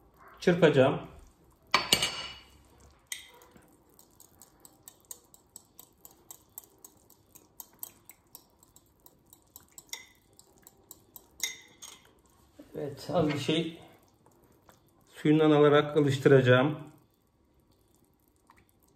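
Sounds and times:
fork clinking in ceramic bowl: 8.8 - 12.1.

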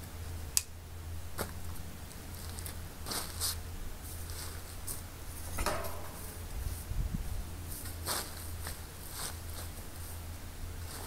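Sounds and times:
sharp click: 5.6 - 6.7.

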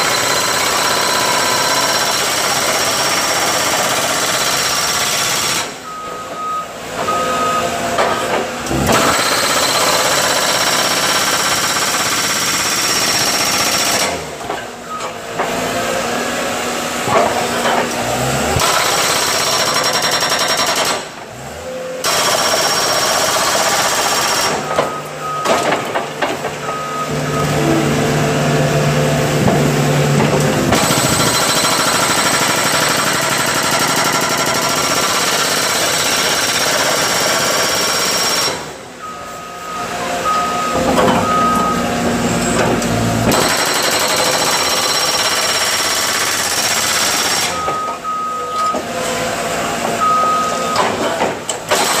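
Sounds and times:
hydraulic breaker hammering concrete: 0.0 - 5.8, 7.8 - 16.0, 16.8 - 21.4, 22.0 - 38.8, 40.7 - 48.1, 49.8 - 52.0
reversing alarm beeping: 0.0 - 15.3, 18.2 - 25.9, 26.5 - 29.4, 30.7 - 51.2
machine engine running: 8.0 - 39.1.

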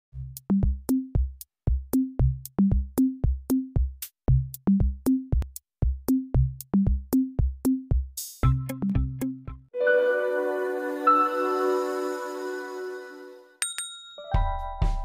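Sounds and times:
drum machine beat: 0.2 - 9.6, 14.3 - 15.0.

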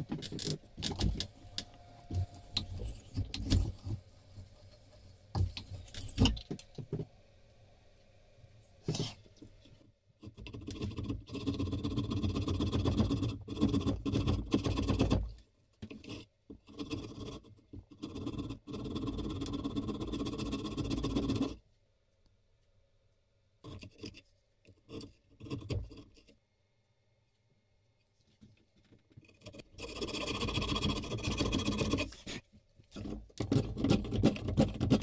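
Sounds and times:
chisel paring scrapes: 2.1 - 6.4.

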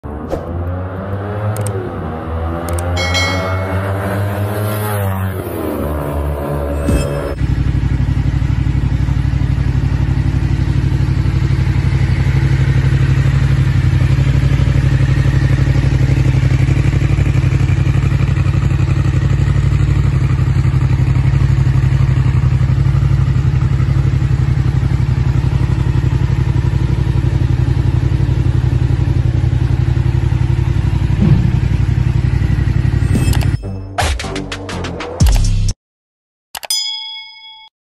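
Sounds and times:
motorcycle engine idling: 7.4 - 33.0.

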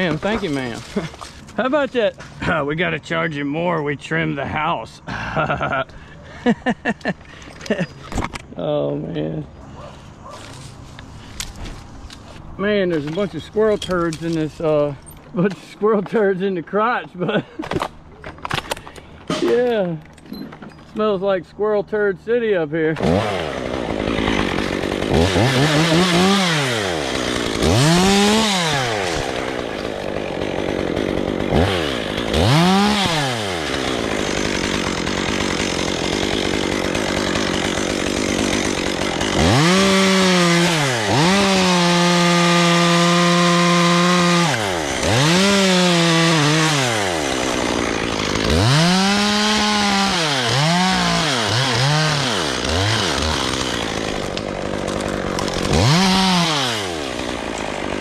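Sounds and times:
chainsaw revving and cutting: 0.0 - 2.5, 22.9 - 58.0.

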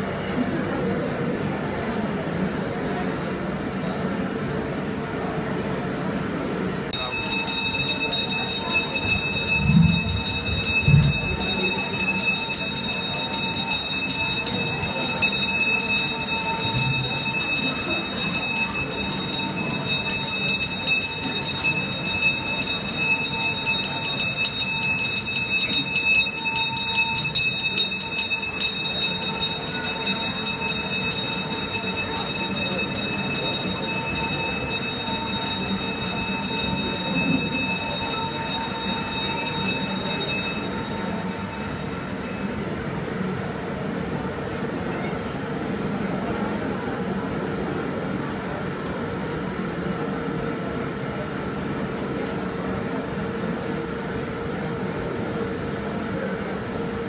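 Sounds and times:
metal bells jangling: 7.0 - 42.5.

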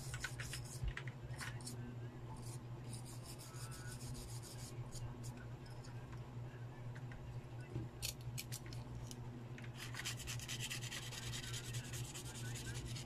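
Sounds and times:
steady low hum: 0.0 - 13.0
bristle brush scrubbing circuit board: 2.4 - 5.0, 9.8 - 13.0.

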